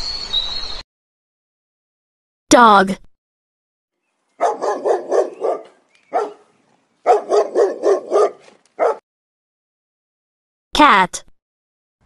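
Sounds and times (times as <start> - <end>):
dog barking: 4.4 - 9.0.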